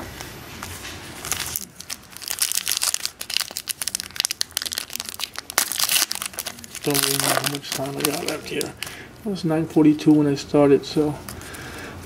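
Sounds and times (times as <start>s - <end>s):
foil wrapper crinkling and tearing: 1.2s - 9.0s.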